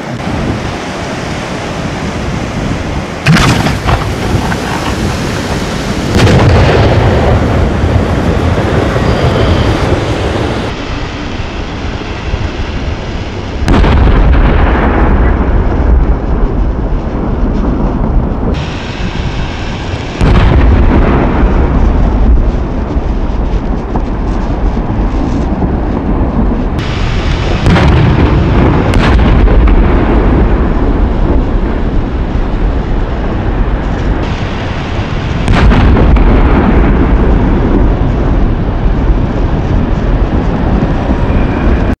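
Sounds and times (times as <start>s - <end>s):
low rumble: 0.0s - 42.0s
firework shells bursting: 3.2s - 6.8s.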